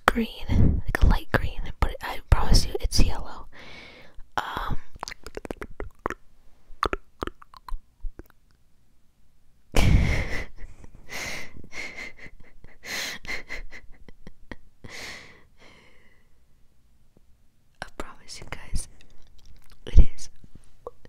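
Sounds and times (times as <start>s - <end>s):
mouth clicks: 4.5s - 6.2s, 6.8s - 8.6s.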